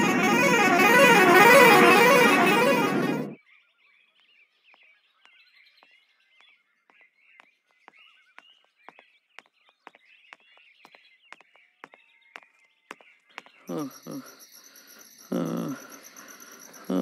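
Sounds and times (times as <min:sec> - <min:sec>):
bus horn: 0:00.0 - 0:03.4
faint birdsong: 0:03.4 - 0:17.0
footsteps on dirt path: 0:04.8 - 0:13.7.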